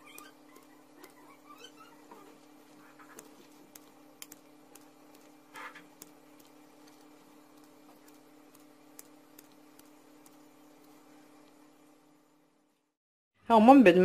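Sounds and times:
scissors snipping dough: 0:00.0 - 0:11.0
steady low hum: 0:00.0 - 0:13.0.

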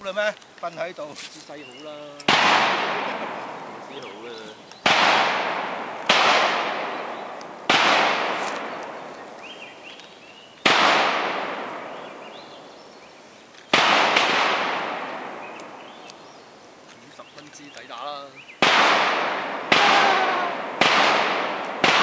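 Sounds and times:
rifle shots echoing: 0:02.2 - 0:09.1, 0:10.6 - 0:12.5, 0:13.7 - 0:16.0, 0:18.6 - 0:22.0.

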